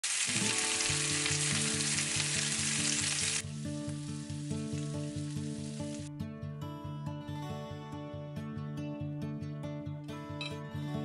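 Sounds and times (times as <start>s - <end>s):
meat sizzling on grill pan: 0.0s - 6.1s.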